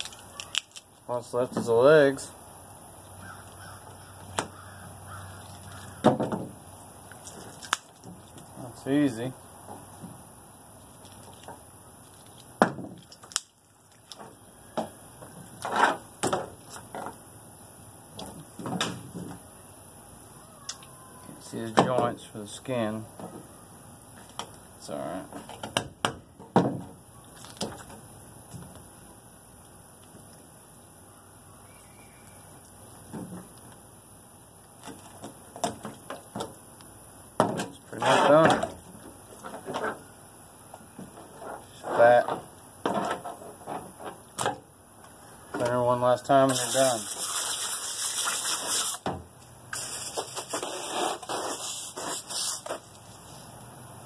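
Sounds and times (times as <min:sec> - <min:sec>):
bones cracking: 0:07.1 - 0:08.5.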